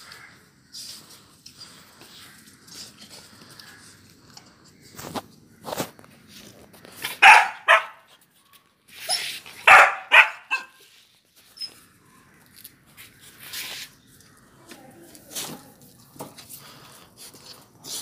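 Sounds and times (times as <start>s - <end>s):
puppy barking: 7.1s - 8.1s, 9.1s - 10.8s
puppy yipping: 9.0s - 10.8s.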